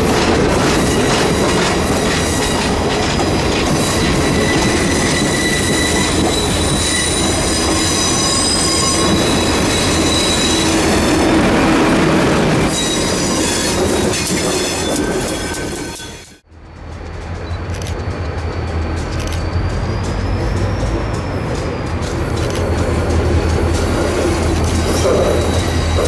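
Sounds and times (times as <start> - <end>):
diesel locomotives passing: 0.0 - 26.0
train wheels clattering on rails: 0.0 - 26.0
high thin wheel squealing: 3.6 - 11.3.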